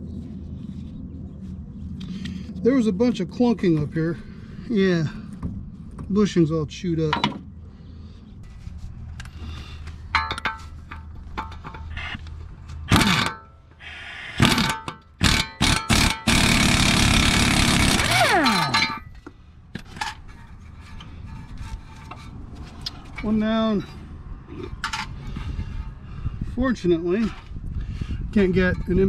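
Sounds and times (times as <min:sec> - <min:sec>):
metal tools clinking: 0:10.1 - 0:12.2, 0:18.2 - 0:19.2
impact wrench whirring: 0:12.9 - 0:13.4, 0:14.3 - 0:18.9.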